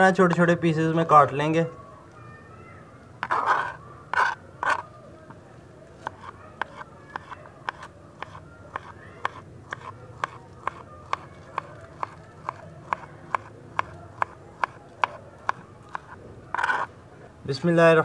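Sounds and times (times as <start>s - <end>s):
knife tapping cutting board: 6.0s - 16.1s.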